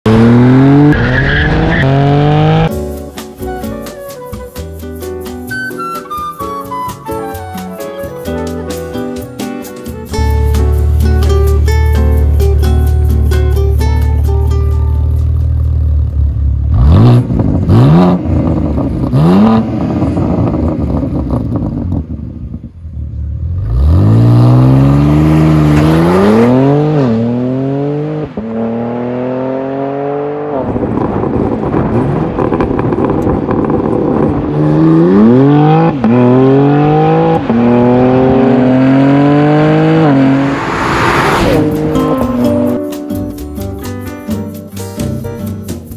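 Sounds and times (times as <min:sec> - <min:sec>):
car engine revving and accelerating: 0:00.1 - 0:02.7, 0:16.6 - 0:22.0, 0:23.4 - 0:42.8.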